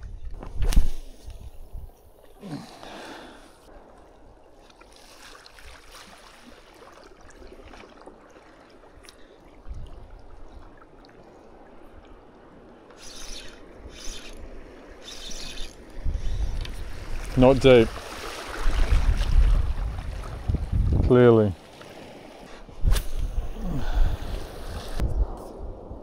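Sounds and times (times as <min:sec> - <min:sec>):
small waves lapping on rock: 0:16.7 - 0:20.4.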